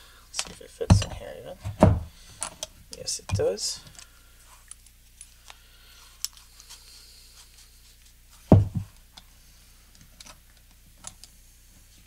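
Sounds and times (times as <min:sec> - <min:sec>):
knock on metal clamp: 0:00.9 - 0:02.1.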